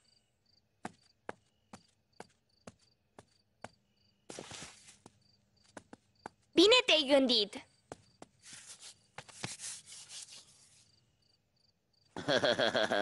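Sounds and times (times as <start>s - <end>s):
rustling swish: 4.3s - 5.0s.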